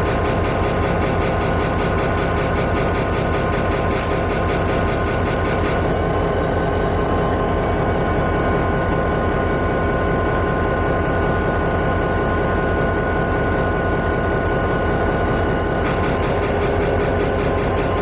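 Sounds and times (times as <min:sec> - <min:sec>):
rapid rhythmic clatter: 0:00.0 - 0:06.0, 0:15.8 - 0:18.0
diesel locomotive engine idling: 0:00.0 - 0:18.0
engine whine: 0:00.0 - 0:18.0.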